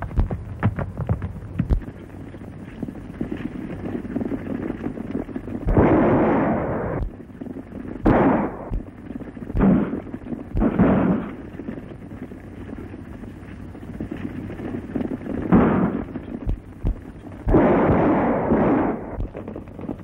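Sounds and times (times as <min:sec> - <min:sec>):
galloping horse hoofbeats: 0:00.0 - 0:20.0
gunshots with echo: 0:05.7 - 0:07.1, 0:08.0 - 0:08.9, 0:09.5 - 0:11.4, 0:15.5 - 0:19.4.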